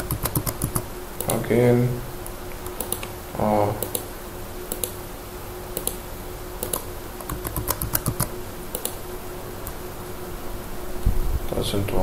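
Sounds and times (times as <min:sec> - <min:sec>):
keyboard keys clicking: 0:00.0 - 0:01.4, 0:06.6 - 0:09.0
faint steady hum: 0:00.0 - 0:12.0.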